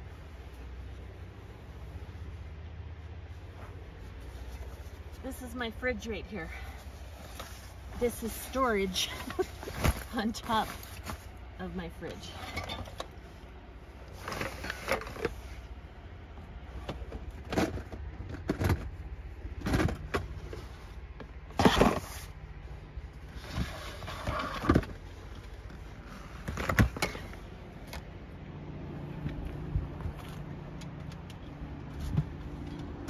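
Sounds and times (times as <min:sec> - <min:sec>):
steady low rumble: 0:00.0 - 0:33.0
plastic containers clattering: 0:16.8 - 0:20.5.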